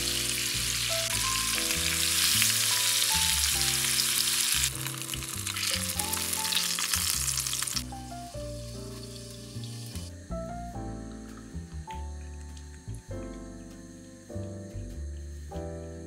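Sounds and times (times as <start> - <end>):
food sizzling in hot oil: 0.0 - 10.2
background music: 0.0 - 16.0.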